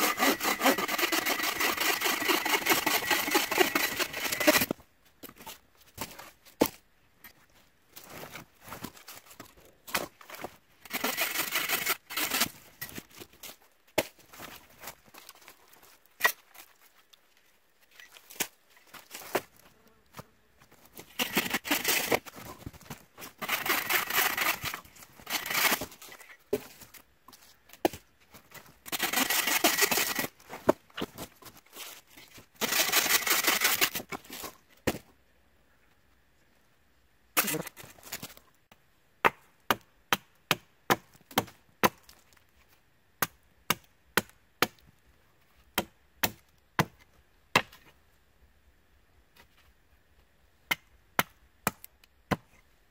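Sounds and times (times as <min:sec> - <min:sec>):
hand saw cutting branches: 0:00.0 - 0:04.7, 0:10.9 - 0:12.6, 0:21.2 - 0:22.3, 0:23.3 - 0:26.0, 0:28.9 - 0:30.4, 0:32.6 - 0:34.1.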